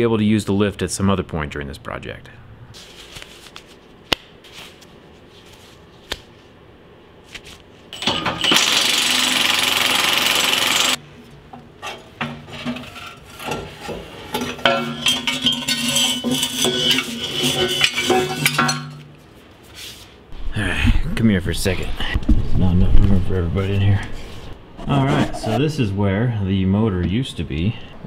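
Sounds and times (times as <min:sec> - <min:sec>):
rubber gloves snapping: 0:04.1 - 0:04.4, 0:06.0 - 0:06.3
metal clanks and rattles: 0:07.9 - 0:08.7, 0:11.8 - 0:19.2
power tool running: 0:08.0 - 0:11.0.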